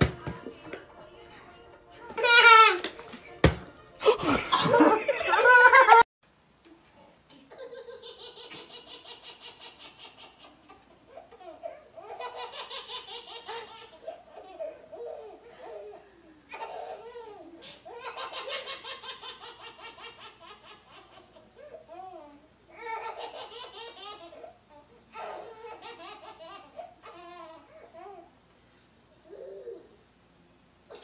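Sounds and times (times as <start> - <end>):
woman laughing: 4.0 - 6.1
baby belly-laughing: 7.5 - 28.2.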